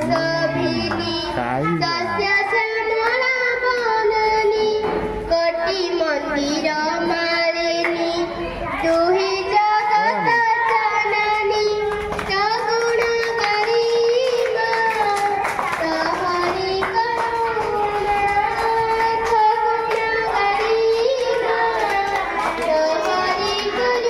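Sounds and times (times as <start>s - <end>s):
child singing: 0.0s - 24.0s.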